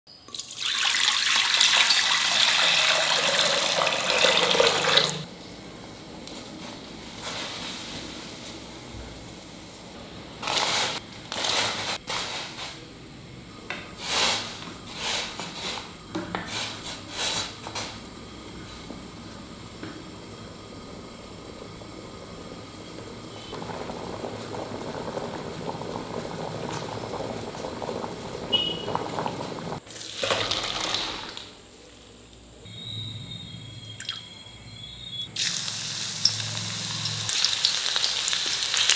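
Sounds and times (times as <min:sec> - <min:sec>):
water pouring into a pot: 0:00.3 - 0:05.3, 0:20.2 - 0:31.5, 0:35.4 - 0:38.9.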